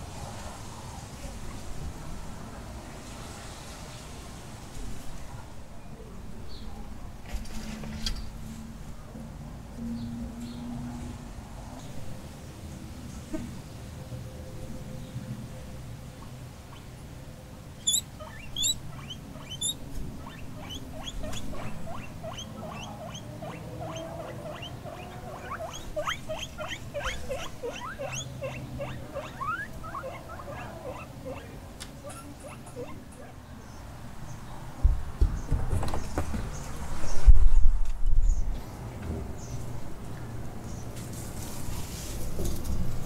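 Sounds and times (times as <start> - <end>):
guinea pigs squeaking: 17.8 - 33.4.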